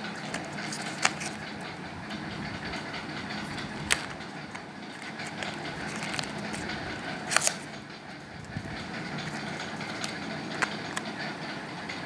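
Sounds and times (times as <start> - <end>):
steady background noise: 0.0 - 12.0
cardboard box handling: 4.9 - 6.7.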